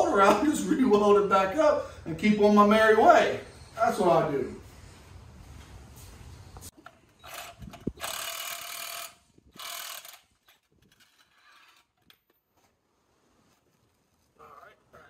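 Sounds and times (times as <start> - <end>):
cordless drill whirring: 7.1 - 10.4.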